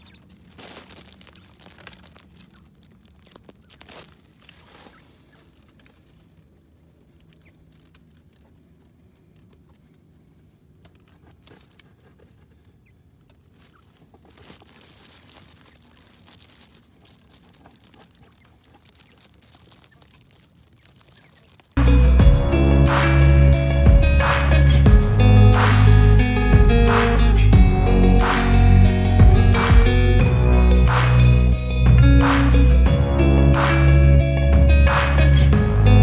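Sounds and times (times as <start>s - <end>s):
dry leaves rustling: 0.0s - 22.1s.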